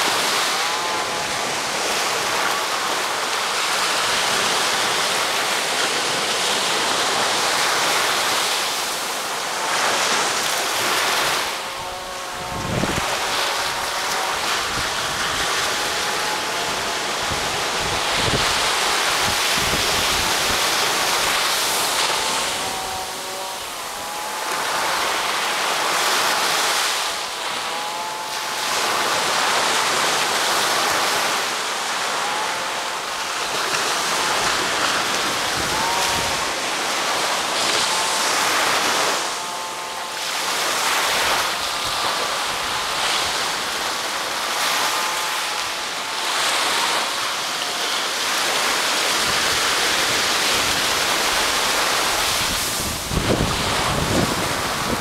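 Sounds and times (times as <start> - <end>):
wind buffeting microphone: 0.0 - 24.1, 49.1 - 55.0
small ocean waves breaking: 0.0 - 55.0.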